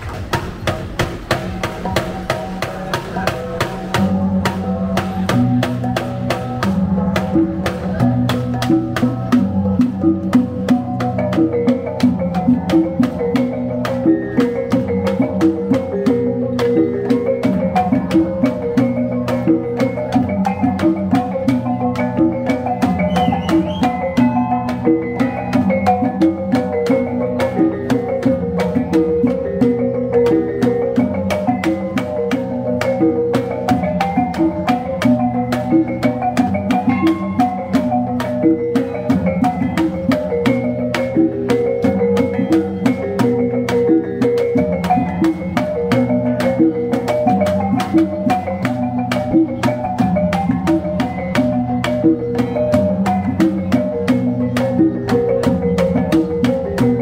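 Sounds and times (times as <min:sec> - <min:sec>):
large hanging gongs: 0:00.0 - 0:57.0
long drum beat: 0:00.0 - 0:57.0.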